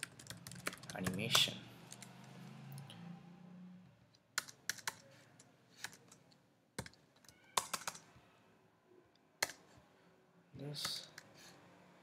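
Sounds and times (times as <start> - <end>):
computer keyboard typing: 0.0 - 2.3, 4.3 - 8.1, 9.4 - 9.6.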